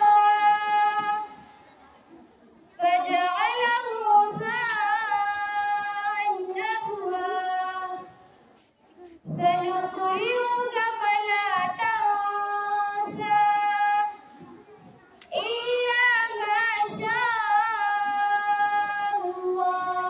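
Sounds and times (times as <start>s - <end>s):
girl chanting melodically: 2.7s - 8.2s, 9.2s - 14.6s, 15.2s - 20.0s.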